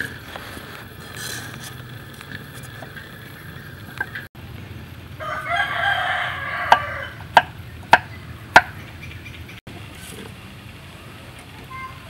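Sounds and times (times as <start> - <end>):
rooster crowing: 5.2 - 7.4.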